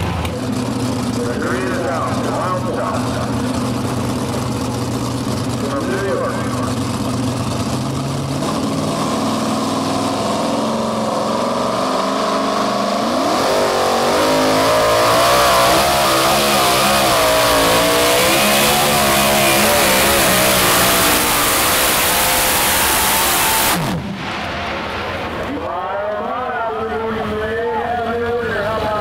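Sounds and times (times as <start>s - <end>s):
pulling truck engine revving: 0.0s - 29.0s.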